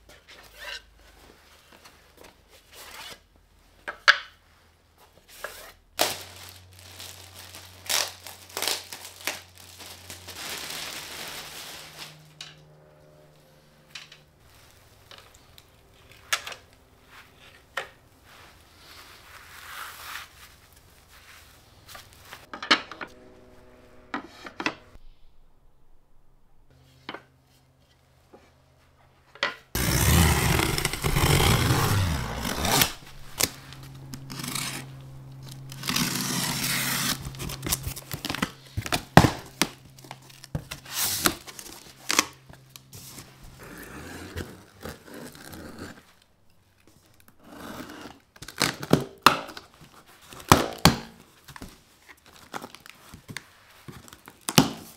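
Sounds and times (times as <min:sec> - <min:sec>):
cardboard scraping and rustling: 0:05.2 - 0:12.6, 0:29.8 - 0:46.2
cardboard tape ripping: 0:06.0 - 0:12.5, 0:29.8 - 0:46.2, 0:47.6 - 0:49.7.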